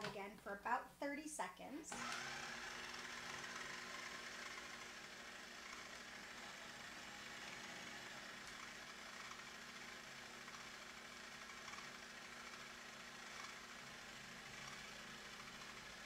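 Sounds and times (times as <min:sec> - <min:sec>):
food processor motor running: 0:01.9 - 0:16.0.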